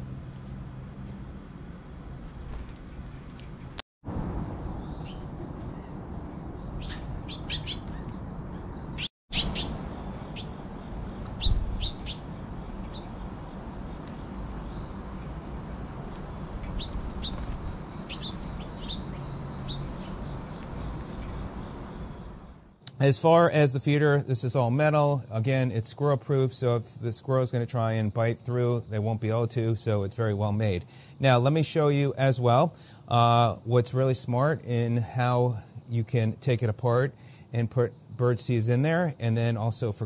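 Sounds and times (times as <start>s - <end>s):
high-pitched insect drone: 0.0s - 22.8s
bird chirps: 6.6s - 13.2s, 16.6s - 22.5s.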